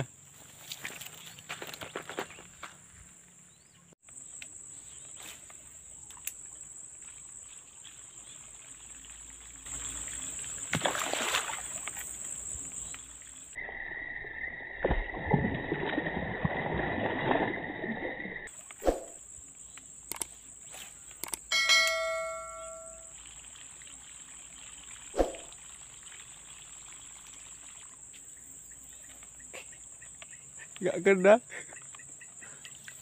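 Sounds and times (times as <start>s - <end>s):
notification bell chime: 21.5s - 23.1s.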